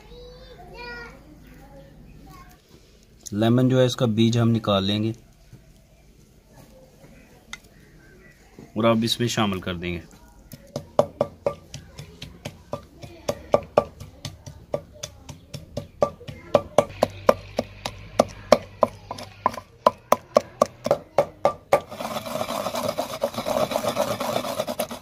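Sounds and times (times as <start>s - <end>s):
pestle scraping around bowl: 10.5s - 25.0s
pestle pounding in stone mortar: 10.6s - 25.0s.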